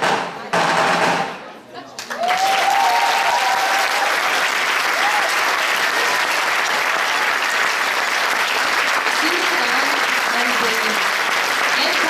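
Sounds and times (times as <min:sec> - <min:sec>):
cheers: 0:02.0 - 0:09.2
audience applauding: 0:02.0 - 0:12.0.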